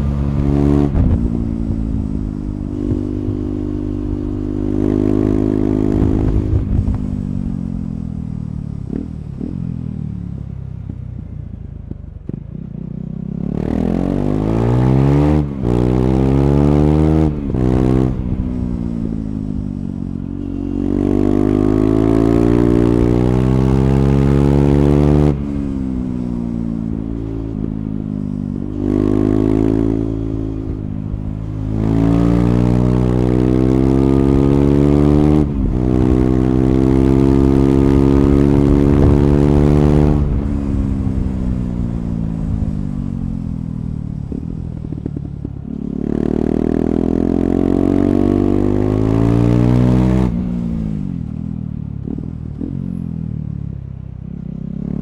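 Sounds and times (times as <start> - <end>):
motorcycle engine revving: 0.0 - 55.0.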